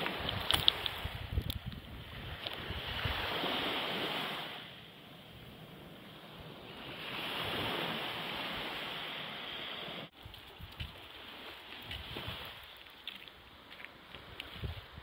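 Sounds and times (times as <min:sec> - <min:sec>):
waves washing up pebble beach: 0:00.0 - 0:04.8.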